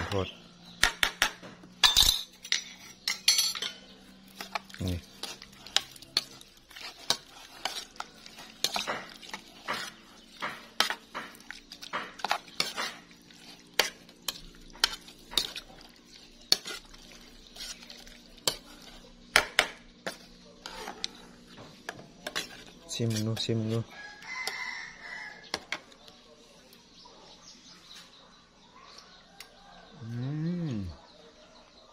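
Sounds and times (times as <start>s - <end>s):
metal spoon scraping saucepan: 1.8s - 24.6s.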